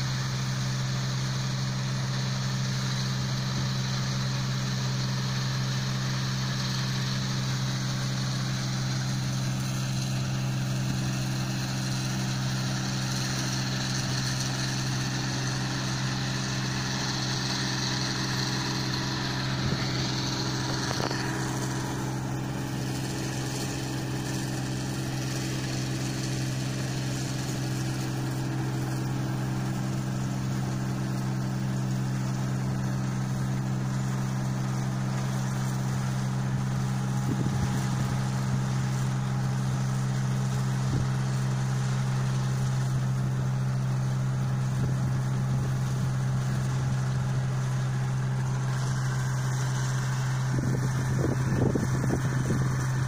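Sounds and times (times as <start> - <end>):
high hiss: 0.0 - 34.2
combine harvester engine drone: 0.0 - 53.0.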